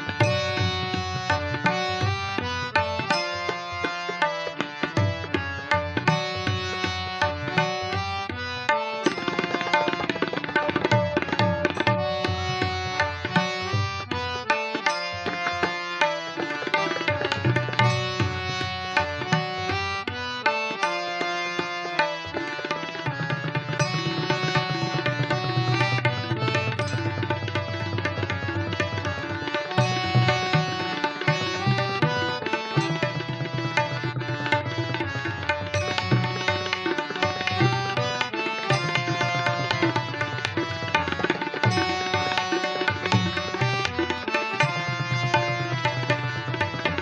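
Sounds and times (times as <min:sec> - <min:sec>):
harmonium melody: 0:00.0 - 0:47.0
hand drums playing fast: 0:09.0 - 0:13.8, 0:16.4 - 0:19.7, 0:23.8 - 0:47.0.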